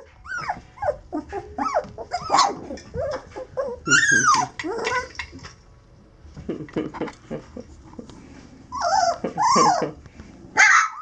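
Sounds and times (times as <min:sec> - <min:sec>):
puppies crying: 0:00.0 - 0:05.5, 0:08.7 - 0:10.0, 0:10.6 - 0:11.0.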